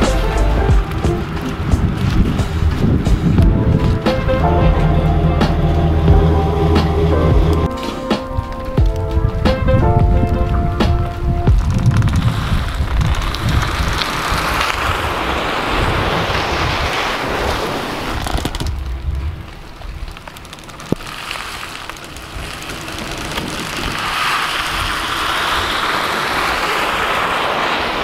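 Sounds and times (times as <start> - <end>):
vehicle engine running: 0.0 - 7.7
wind on microphone: 0.0 - 20.2
rain: 0.0 - 28.0.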